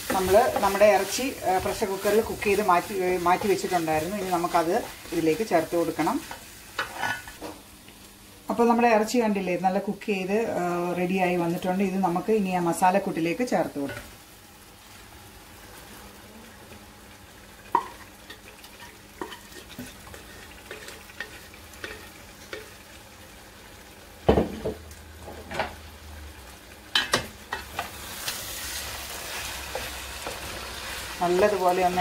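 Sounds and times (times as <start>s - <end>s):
wooden spatula scraping: 0.0s - 7.4s
meat sizzling in a pot: 0.0s - 32.0s.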